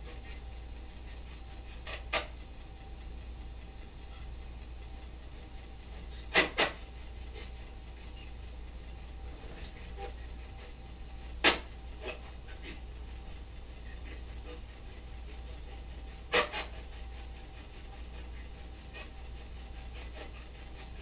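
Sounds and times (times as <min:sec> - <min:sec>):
room hum and hiss: 0:00.0 - 0:21.0.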